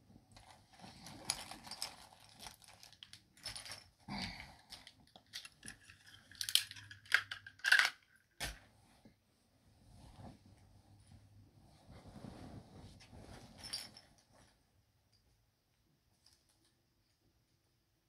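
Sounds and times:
plastic packaging crinkling: 0:00.3 - 0:03.9
small items rattling and clicking: 0:00.3 - 0:08.6.

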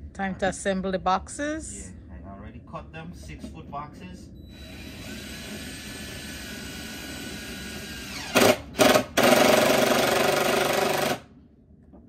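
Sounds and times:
cordless drill driving screws: 0:04.6 - 0:11.2.

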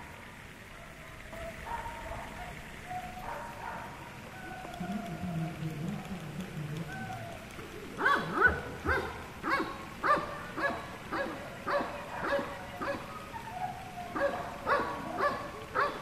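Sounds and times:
puppy yapping: 0:07.1 - 0:16.0.

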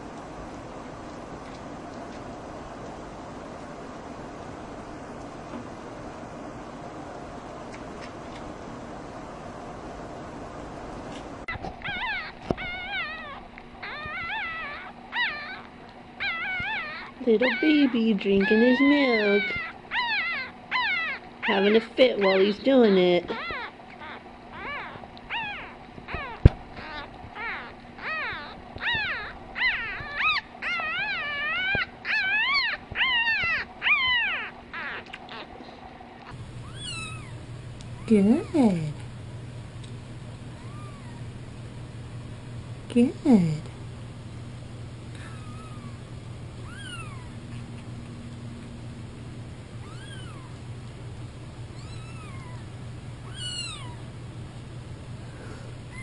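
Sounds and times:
puppy whimpering: 0:11.5 - 0:37.4, 0:40.6 - 0:41.2, 0:45.2 - 0:46.0, 0:46.6 - 0:48.0, 0:49.8 - 0:50.6, 0:51.8 - 0:54.1.

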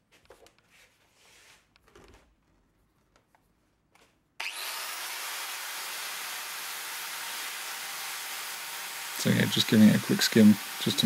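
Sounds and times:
angle grinder grinding metal: 0:04.4 - 0:11.0.

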